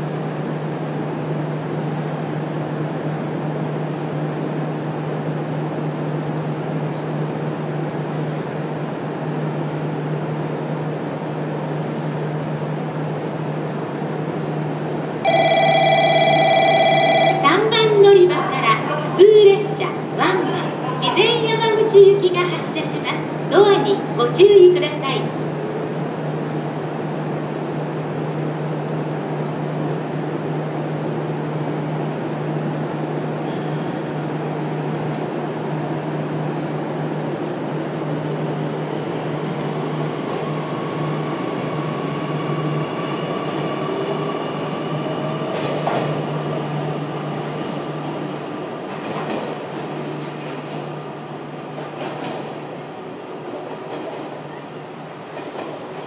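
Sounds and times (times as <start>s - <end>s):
electric train humming: 14.0s - 31.3s, 35.9s - 54.2s.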